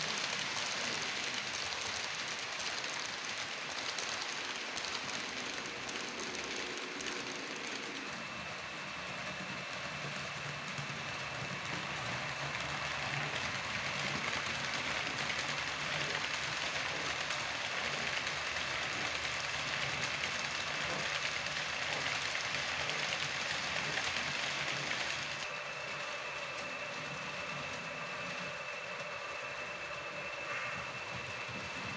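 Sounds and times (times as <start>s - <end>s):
model train wheels rattling on rail: 0.0s - 25.6s
thin constant whine: 0.0s - 31.9s.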